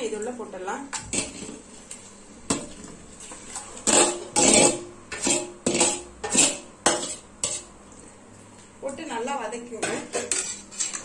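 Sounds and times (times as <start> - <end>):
metal bowl scraping and knocking: 3.4 - 7.7, 9.8 - 11.0.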